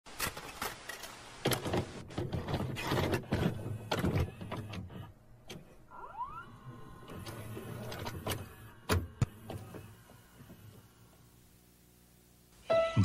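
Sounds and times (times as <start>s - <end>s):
low motor whirr: 5.9s - 12.2s
mechanical clicks and clunks: 7.0s - 10.7s.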